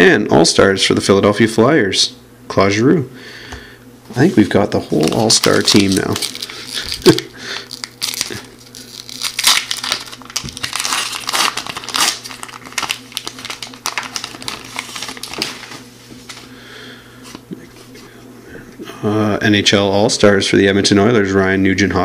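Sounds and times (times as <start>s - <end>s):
foil wrapper tearing and crinkling: 4.9s - 15.8s.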